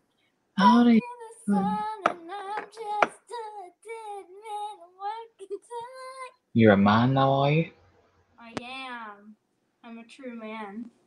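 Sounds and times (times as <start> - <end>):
girl singing high-pitched: 0.6 - 6.4.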